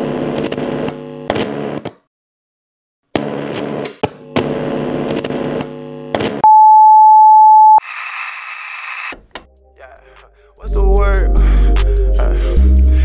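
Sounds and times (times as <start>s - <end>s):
high test-card beep: 6.4s - 7.8s.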